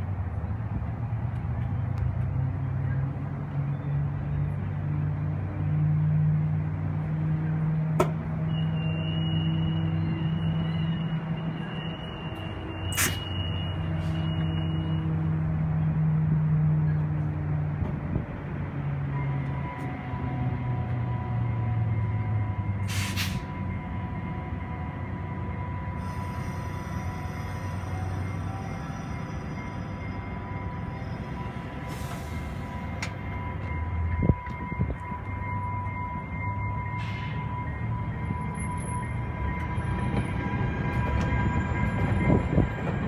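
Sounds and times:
train locomotive humming: 0.0 - 43.0
steady high-pitched tone: 18.9 - 43.0.

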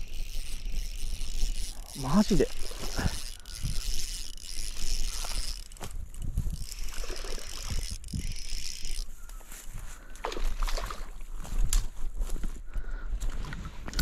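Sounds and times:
fishing reel gears whirring: 0.0 - 10.8
wind rumbling on microphone: 0.0 - 14.0.

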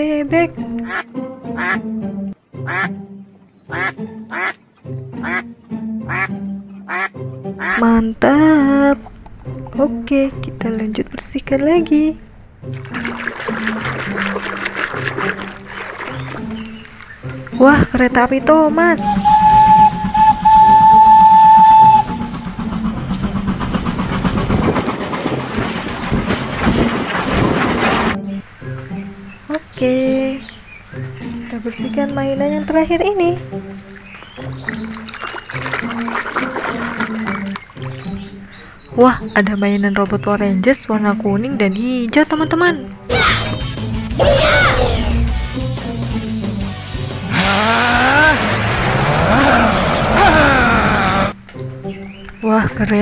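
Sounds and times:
background music with held notes: 0.0 - 24.0, 27.8 - 47.4, 50.5 - 53.0
duck quacking: 0.8 - 1.8, 2.6 - 3.0, 3.7 - 4.6, 5.2 - 5.5, 6.1 - 7.9
steam whistle: 19.0 - 23.0
train chugging: 19.0 - 28.2.

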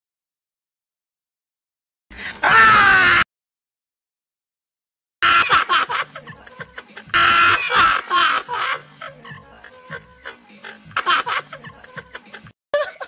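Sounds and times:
people laughing hard: 5.2 - 13.0
music: 5.5 - 13.0.

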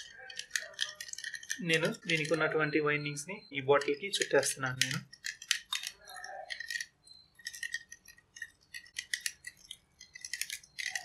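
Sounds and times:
wire ticking and clinking on glass: 0.0 - 11.0.

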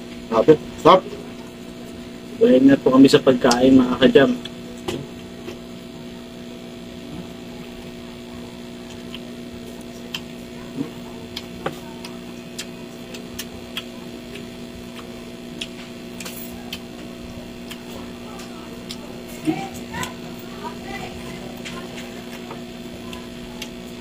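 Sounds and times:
steady electrical hum: 0.0 - 24.0
chewing: 8.4 - 20.3.

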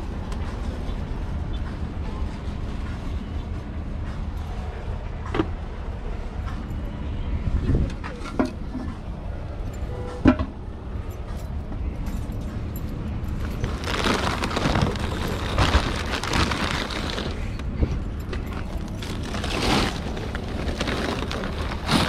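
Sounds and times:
steady low rumble: 10.5 - 22.0
plastic wrap crinkling: 13.6 - 17.6, 18.4 - 22.0.

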